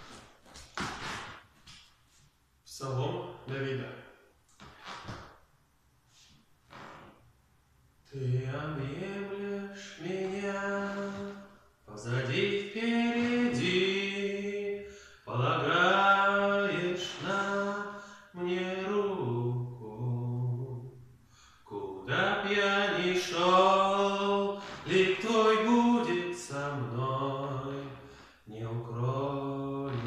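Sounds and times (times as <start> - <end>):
person singing unaccompanied: 8.1 - 20.9, 21.7 - 30.0.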